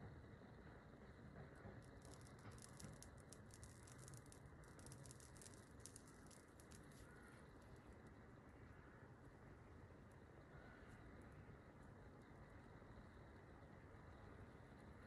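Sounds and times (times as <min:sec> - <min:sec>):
rapid faint crackling: 0:01.8 - 0:08.2.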